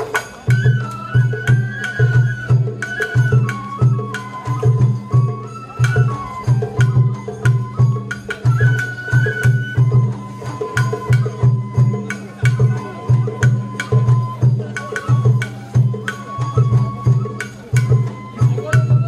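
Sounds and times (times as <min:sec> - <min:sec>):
bamboo flute: 0:00.0 - 0:19.0
taiko drums beating: 0:00.0 - 0:19.0.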